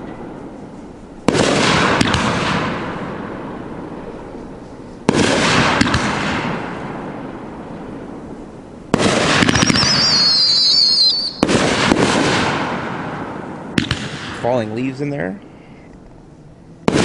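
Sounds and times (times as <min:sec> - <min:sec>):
firework whistle: 0:08.9 - 0:14.5
firework shells bursting: 0:08.9 - 0:15.0.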